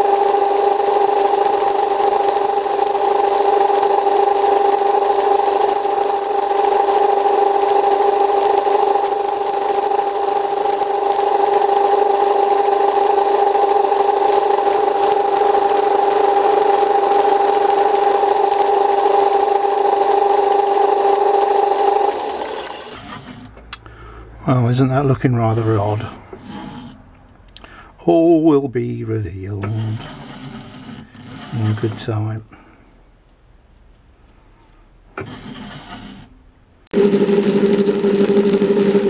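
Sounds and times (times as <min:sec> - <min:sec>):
metal lathe whining: 0:00.0 - 0:23.5, 0:29.6 - 0:32.2, 0:37.0 - 0:39.0.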